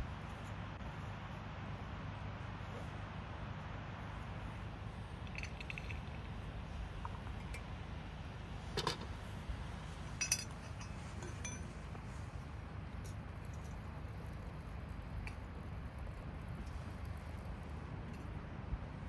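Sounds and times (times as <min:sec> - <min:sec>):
light rattle: 0:05.2 - 0:07.7
teaware clinking on stone table: 0:08.8 - 0:09.1, 0:10.2 - 0:11.7
sharp ringing clink: 0:10.2 - 0:11.7.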